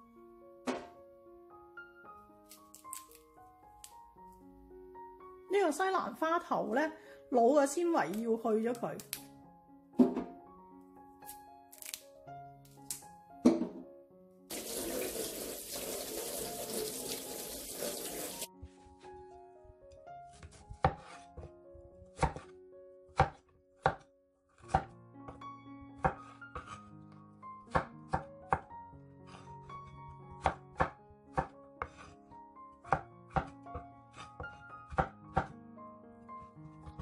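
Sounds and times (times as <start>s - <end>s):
water running into a sink: 14.5s - 18.5s
knife chopping on wooden board: 20.3s - 21.5s, 22.1s - 22.5s, 23.1s - 25.4s, 26.0s - 26.9s, 27.7s - 28.7s, 30.3s - 32.2s, 32.9s - 35.5s.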